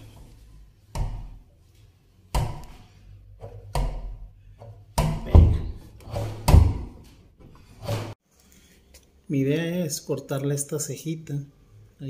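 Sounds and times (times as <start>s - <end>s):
wooden door thumping against frame: 5.0s - 7.0s.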